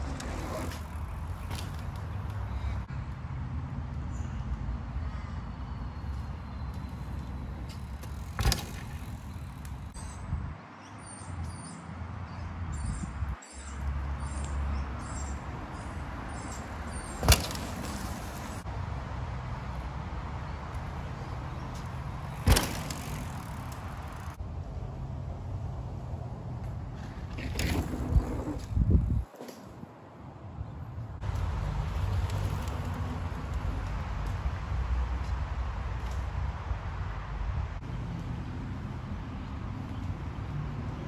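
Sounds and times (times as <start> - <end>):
low rumble of bicycle tyres: 0.0 - 2.9, 3.8 - 10.2, 16.4 - 18.7, 19.4 - 29.6, 30.9 - 41.0
wind on microphone: 27.8 - 29.3.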